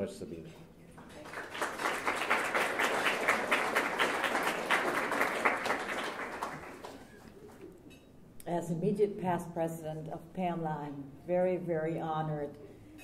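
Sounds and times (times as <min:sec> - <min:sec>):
audience applauding: 0:01.0 - 0:07.5.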